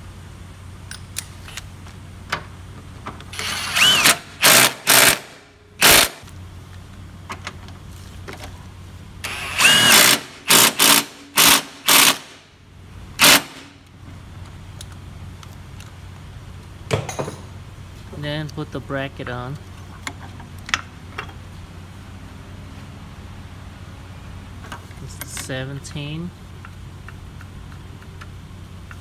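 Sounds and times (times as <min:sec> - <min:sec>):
steady low hum: 0:00.0 - 0:29.0
cordless power tool whirring: 0:03.3 - 0:05.2, 0:09.2 - 0:12.2.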